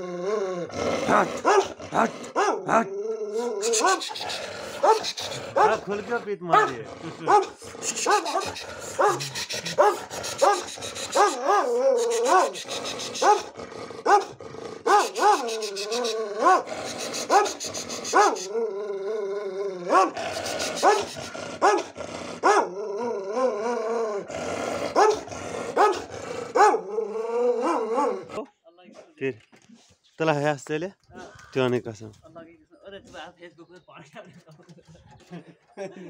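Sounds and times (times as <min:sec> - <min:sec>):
dog barking: 0:01.1 - 0:02.8, 0:03.7 - 0:04.1, 0:04.8 - 0:05.8, 0:06.5 - 0:12.6, 0:13.2 - 0:13.5, 0:14.1 - 0:14.3, 0:14.9 - 0:15.6, 0:16.4 - 0:16.7, 0:17.3 - 0:18.5, 0:19.9 - 0:20.2, 0:20.8 - 0:22.7, 0:24.9 - 0:26.9.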